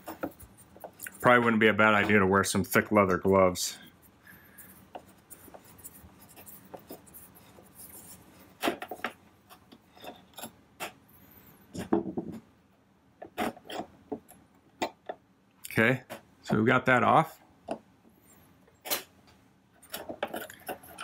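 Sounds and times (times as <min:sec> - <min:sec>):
screwdriver scraping: 0:19.8 - 0:21.0.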